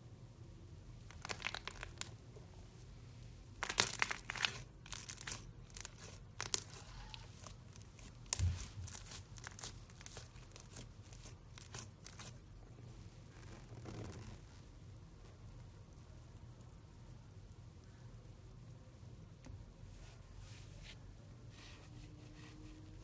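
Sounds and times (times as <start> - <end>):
slime crackling and popping: 1.0 - 2.2, 3.5 - 12.7.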